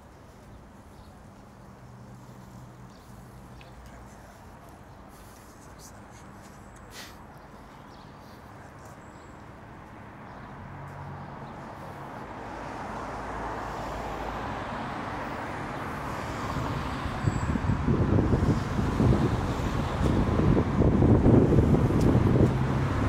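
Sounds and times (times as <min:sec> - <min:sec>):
motor vehicle rumbling: 0:09.8 - 0:23.0.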